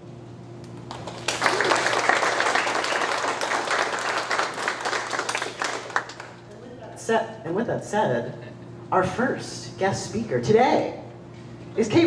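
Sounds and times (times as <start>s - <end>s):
audience applauding: 0.8s - 6.4s.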